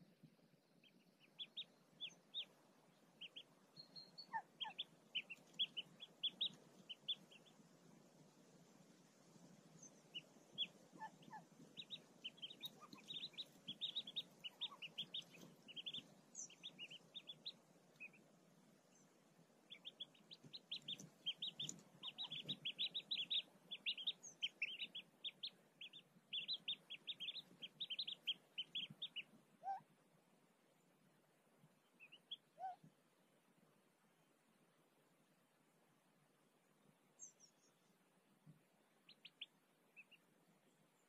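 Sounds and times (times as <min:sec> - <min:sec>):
ducklings peeping: 0:00.8 - 0:07.7, 0:09.0 - 0:29.9, 0:31.8 - 0:32.9, 0:38.6 - 0:40.3.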